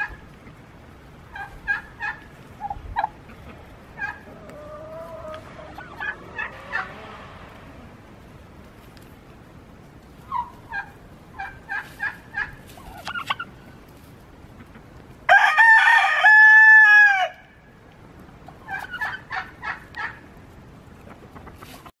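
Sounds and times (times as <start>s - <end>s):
hens clucking: 0.0s - 15.3s, 18.0s - 21.9s
rooster crowing: 15.3s - 17.5s.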